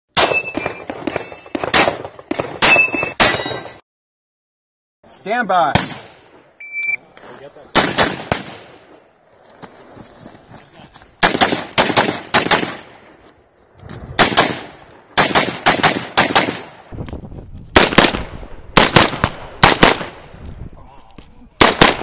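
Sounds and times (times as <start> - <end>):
rifle shots in quick strings: 14.2 - 16.7.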